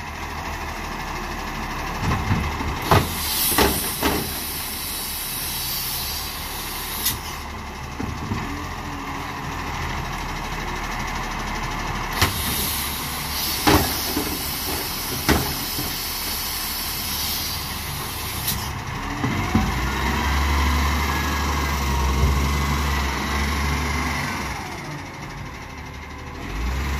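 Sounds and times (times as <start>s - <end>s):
diesel engine revving: 0.0s - 26.9s
hydraulic arm hiss: 2.9s - 7.4s, 12.2s - 18.8s.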